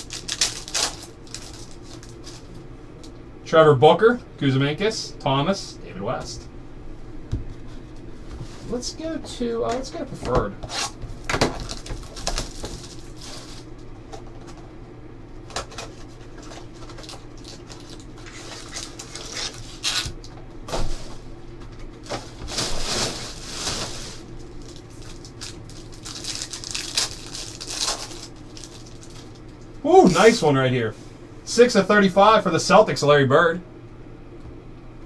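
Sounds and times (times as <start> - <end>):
wrapper crinkling and tearing: 0.0 - 2.5, 11.5 - 13.7, 16.4 - 20.2, 22.6 - 30.4
low electrical hum: 0.0 - 35.0.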